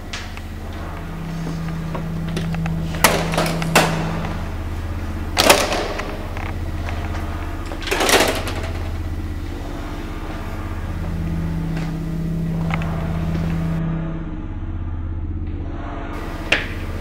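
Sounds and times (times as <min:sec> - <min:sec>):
higher steady tone: 0:00.0 - 0:17.0
low droning hum: 0:00.0 - 0:17.0.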